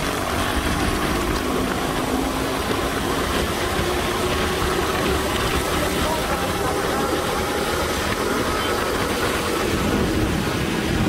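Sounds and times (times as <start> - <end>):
road and traffic noise on wet road: 0.0 - 11.0
vehicle engine hum: 0.0 - 11.0.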